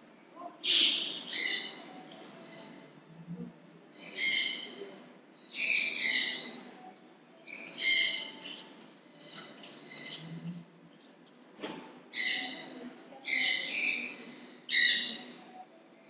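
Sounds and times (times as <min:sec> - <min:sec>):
bird high-pitched call: 0:00.6 - 0:02.8, 0:07.4 - 0:10.2.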